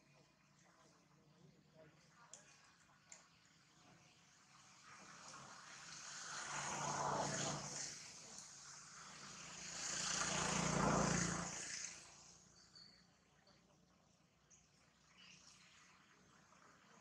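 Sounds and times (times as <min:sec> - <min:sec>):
passing vehicle engine: 0:05.5 - 0:12.4.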